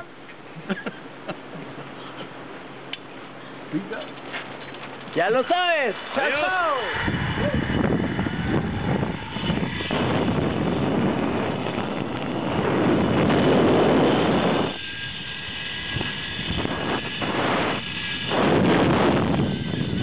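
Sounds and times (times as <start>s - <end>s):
zip-line pulleys on cable: 3.8s - 20.0s
wind rushing over microphone: 5.2s - 20.0s.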